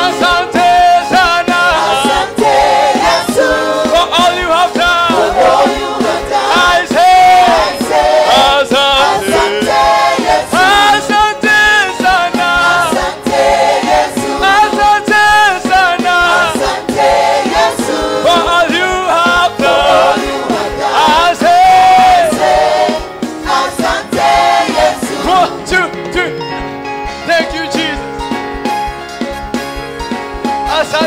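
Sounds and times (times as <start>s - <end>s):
man singing lead vocals: 0.0s - 2.4s, 3.1s - 5.8s, 8.3s - 13.0s, 14.3s - 16.7s, 18.2s - 20.2s
gospel choir singing: 0.0s - 26.6s
band with steady beat: 0.0s - 31.0s.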